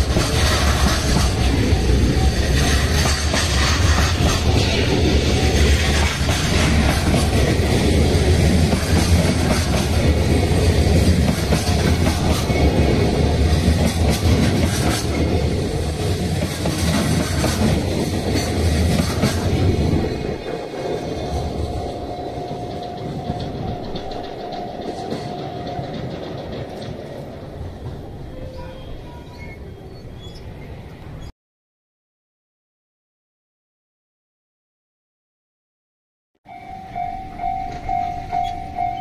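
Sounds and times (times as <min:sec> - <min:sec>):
freight train wheels clattering: 0:00.0 - 0:29.2
train rumble: 0:00.0 - 0:31.3, 0:36.5 - 0:39.0.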